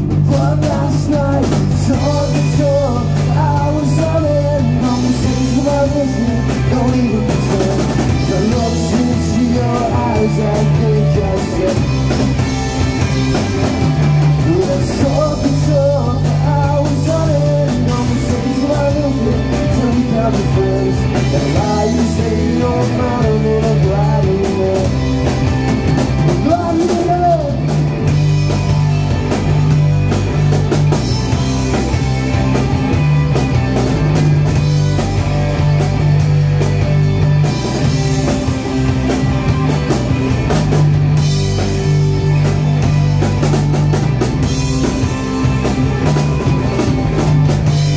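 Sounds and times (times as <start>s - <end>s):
live rock band playing: 0.0s - 47.9s.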